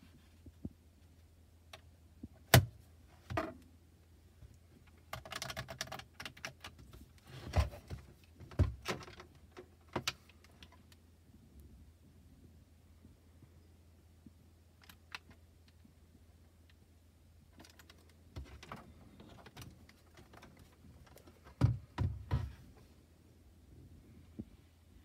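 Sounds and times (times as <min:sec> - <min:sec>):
low steady hum: 0:06.1 - 0:25.0.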